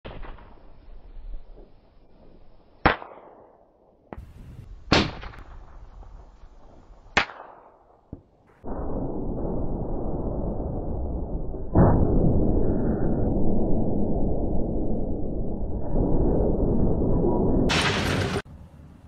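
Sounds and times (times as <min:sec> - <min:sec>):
faint sharp cracks: 0:07.1 - 0:08.6
rifle shots with echo: 0:07.2 - 0:08.2.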